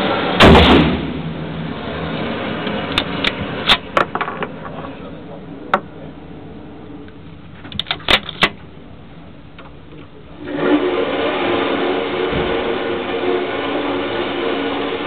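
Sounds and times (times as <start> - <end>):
sharp clicks and knocks: 2.6 - 5.0, 7.1 - 8.7.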